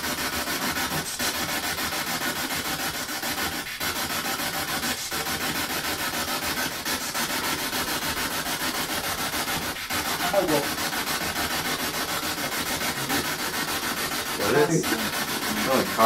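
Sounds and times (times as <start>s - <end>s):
pulsing radio static: 0.6s - 16.0s.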